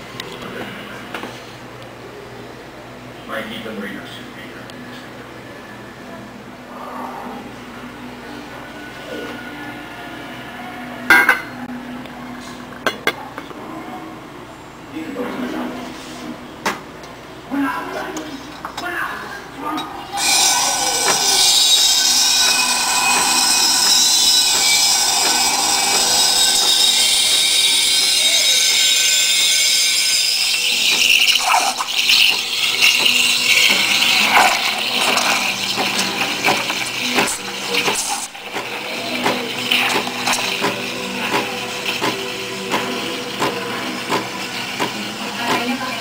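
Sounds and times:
steam wand frothing milk: 0:20.1 - 0:46.0.

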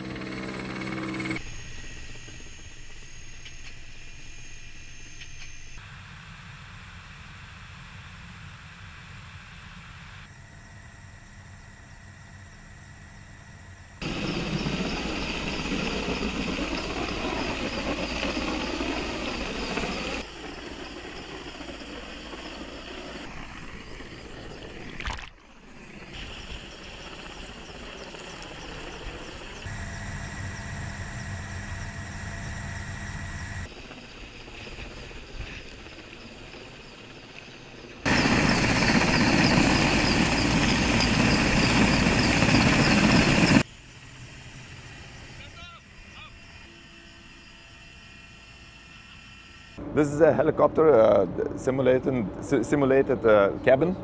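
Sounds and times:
helicopter rotor and engine: 0:00.0 - 0:54.0
water splash: 0:25.0 - 0:25.4.

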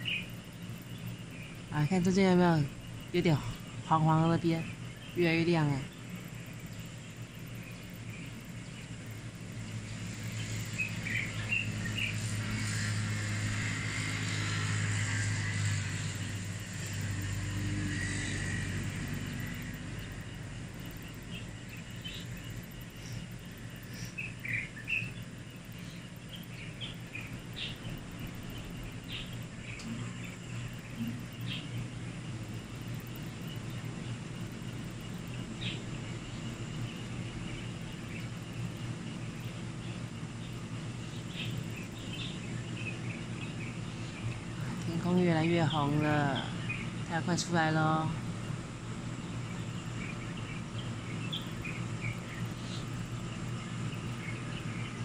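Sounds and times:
bird chirps: 0:00.0 - 0:12.9, 0:19.1 - 0:32.2, 0:49.2 - 0:55.0
steady low hum: 0:00.0 - 0:55.0
vehicle engine passing: 0:10.0 - 0:20.4.

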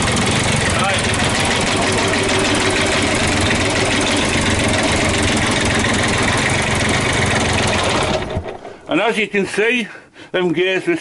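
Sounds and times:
diesel engine running with knock: 0:00.0 - 0:08.8.

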